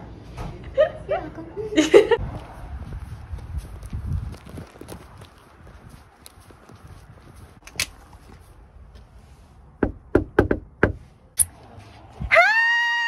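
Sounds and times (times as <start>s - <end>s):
faint footsteps on pavement: 2.2s - 9.8s.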